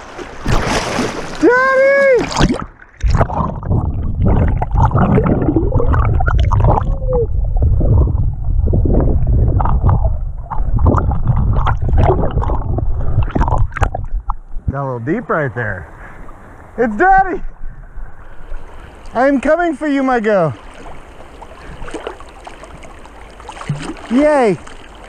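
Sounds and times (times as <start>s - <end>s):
bubbles clicking and crackling: 2.2s - 14.6s
underwater river current rumble: 2.2s - 25.0s.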